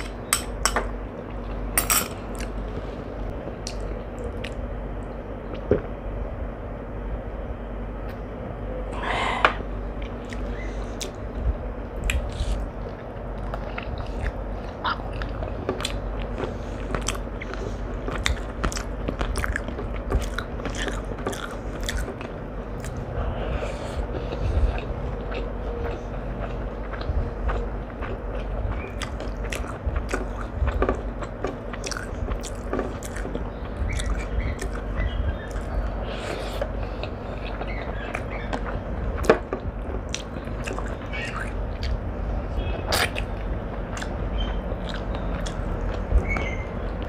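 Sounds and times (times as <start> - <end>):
steady low hum: 0.0 - 47.0
person chewing crunchy food: 9.0 - 11.4, 12.0 - 42.1, 42.8 - 47.0.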